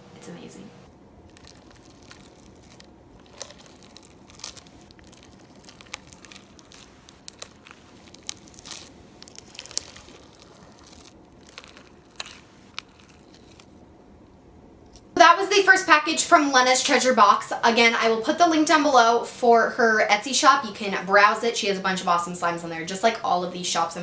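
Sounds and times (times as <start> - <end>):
slime squishing and crackling: 1.2 - 13.9.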